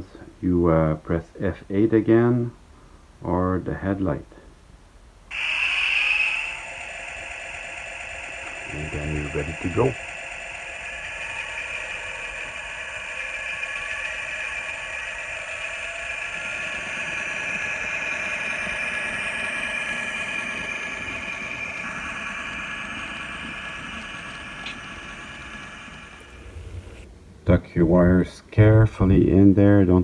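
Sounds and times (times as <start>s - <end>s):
model diesel locomotive idling: 5.3s - 27.1s.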